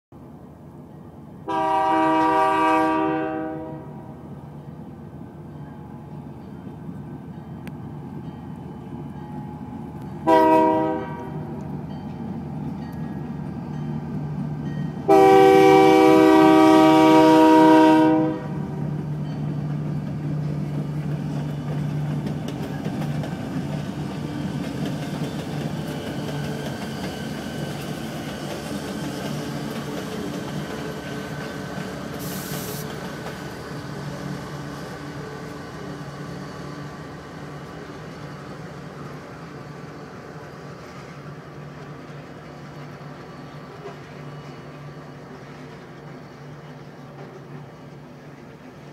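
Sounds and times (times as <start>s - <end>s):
locomotive air horn: 1.5s - 4.2s, 10.2s - 11.5s, 15.1s - 18.8s
short hiss: 32.1s - 33.0s.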